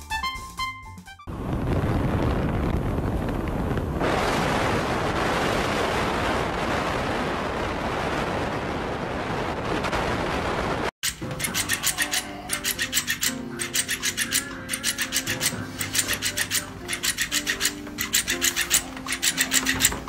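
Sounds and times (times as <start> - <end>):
low rumble of road: 1.3 - 10.9
wind buffeting microphone: 1.3 - 10.9.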